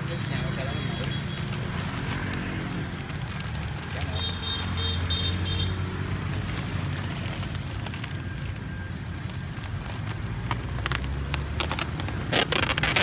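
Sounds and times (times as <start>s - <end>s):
road traffic engine hum: 0.0s - 13.0s.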